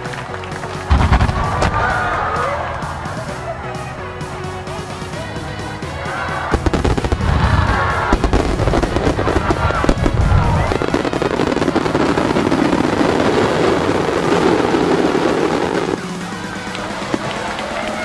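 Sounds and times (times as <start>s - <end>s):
fireworks crackling: 0.0s - 3.5s, 6.3s - 18.0s
fireworks bangs: 0.8s - 3.2s, 6.5s - 18.0s.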